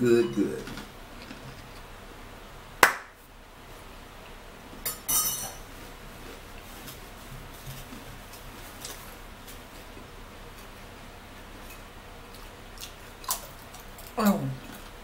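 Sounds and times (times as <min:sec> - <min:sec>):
tableware clinking: 0:04.8 - 0:05.6
crackling rustle: 0:05.6 - 0:11.0.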